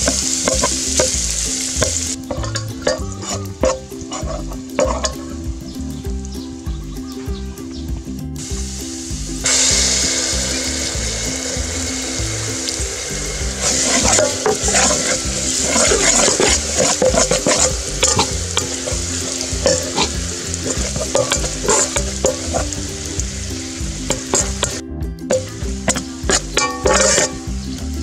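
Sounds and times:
spatula scraping pot: 0.0s - 1.2s, 1.8s - 5.3s, 13.6s - 22.8s, 24.1s - 27.5s
garlic sizzling in oil: 0.0s - 7.0s, 8.4s - 28.0s.

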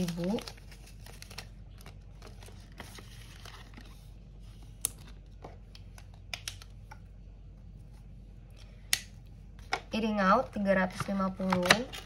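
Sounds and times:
rustling of banknotes and plastic: 0.0s - 6.2s.

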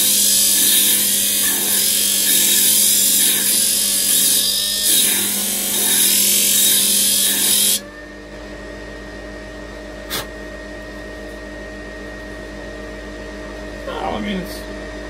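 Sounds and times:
sander motor humming: 0.0s - 7.8s
wood rasping on sanding disc: 0.0s - 7.8s.

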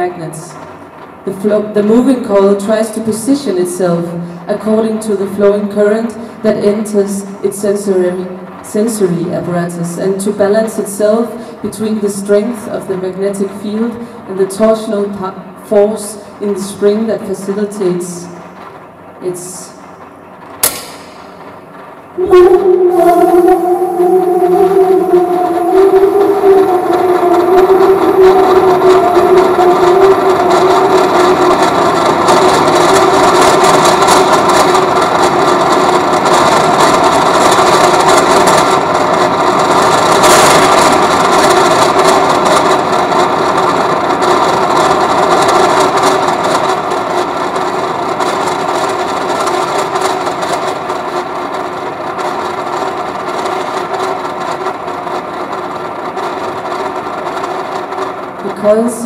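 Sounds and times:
steady humming tones: 0.0s - 59.0s
grainy electronic noise: 22.2s - 46.7s.

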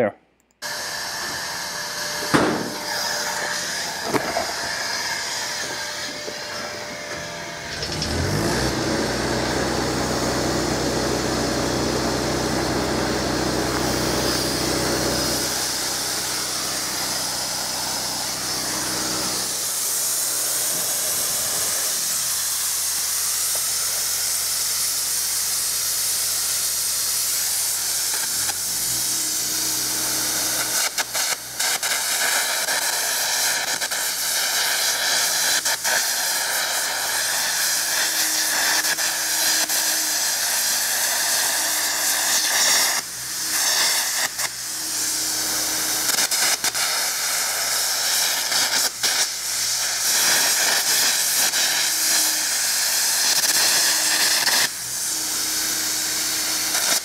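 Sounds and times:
engine-drive welder running: 0.4s - 57.0s
loud hiss of air arc gouging: 0.6s - 8.7s, 13.5s - 57.0s
sharp arc crackles: 27.2s - 54.8s.

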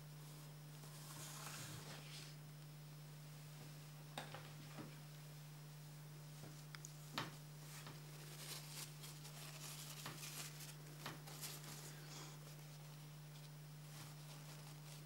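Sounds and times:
low electrical hum: 0.0s - 15.0s
paper rustling and crinkling: 7.2s - 15.0s.

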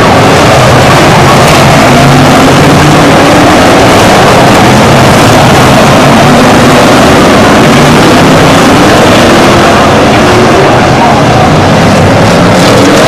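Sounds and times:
race car engines passing: 0.0s - 13.0s.

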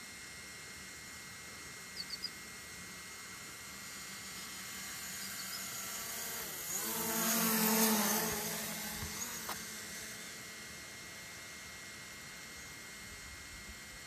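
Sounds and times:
drone propellers whining: 1.9s - 11.0s.

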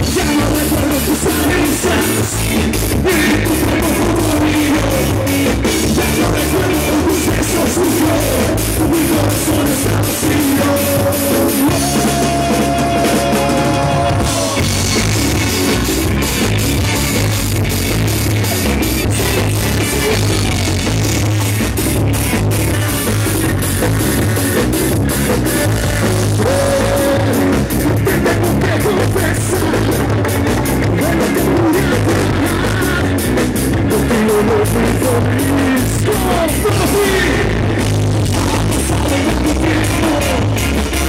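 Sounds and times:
live rock band playing: 0.0s - 41.0s.

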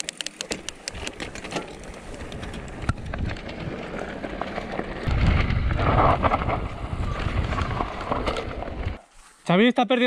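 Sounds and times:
bike clicks and rattles: 0.0s - 9.0s
tyres crunching over gravel: 0.4s - 9.1s
low rumble: 5.0s - 9.0s.

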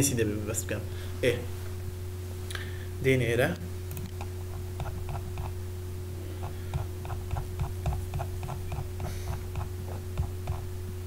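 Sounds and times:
low electrical hum: 0.0s - 11.0s
mouse scroll wheel clicking: 3.9s - 5.6s, 6.4s - 10.6s.

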